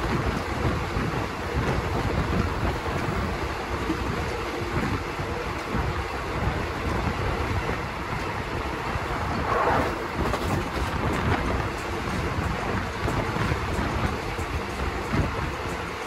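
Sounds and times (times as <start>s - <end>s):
train wheels rumbling on rails: 0.0s - 16.0s
wind rushing past: 4.8s - 15.7s.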